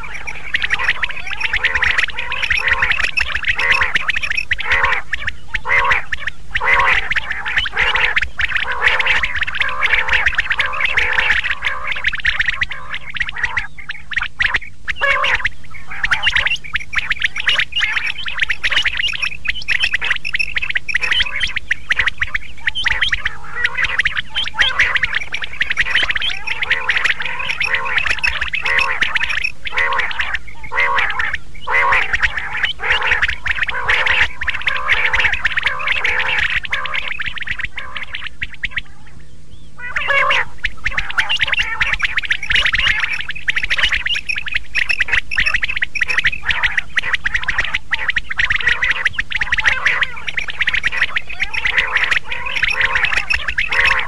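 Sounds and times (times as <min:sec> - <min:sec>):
quail calling: 0:00.0 - 0:54.0.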